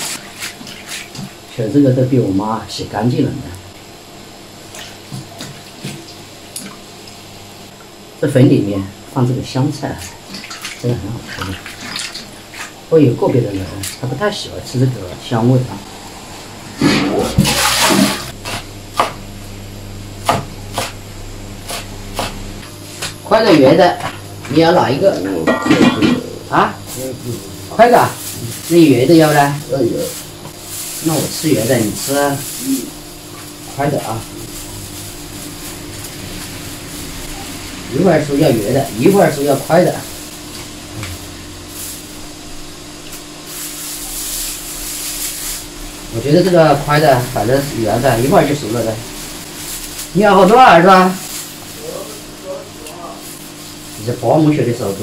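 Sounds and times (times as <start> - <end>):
steady hum: 0.0 - 55.0
water sloshing in a metal basin: 9.8 - 14.1
cleaver chopping on wooden board: 18.4 - 19.2, 20.2 - 21.0, 21.7 - 22.4
plastic bag rustling: 24.6 - 55.0.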